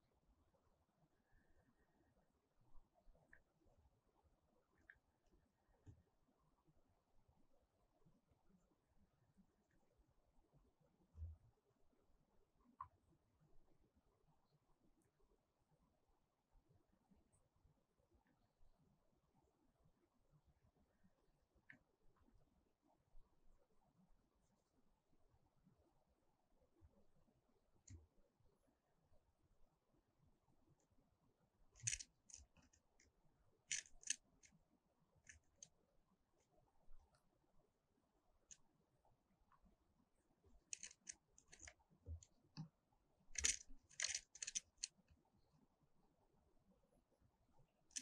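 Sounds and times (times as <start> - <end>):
bird claws scratching on wood: 43.4 - 44.9.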